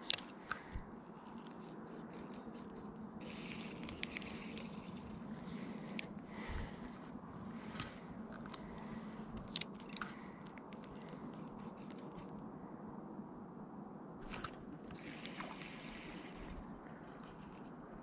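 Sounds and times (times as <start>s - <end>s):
breeze: 0.0s - 13.2s
fishing reel clicks: 1.2s - 5.1s.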